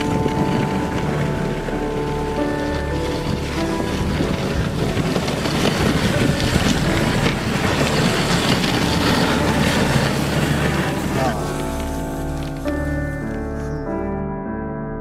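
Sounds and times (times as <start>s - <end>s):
wind on microphone: 0.0s - 13.3s
sled runners crunching on snow: 0.0s - 13.8s.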